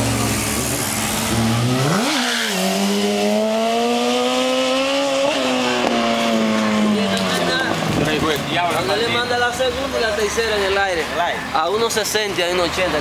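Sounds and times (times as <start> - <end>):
motorcycle engine accelerating: 0.0 - 8.5.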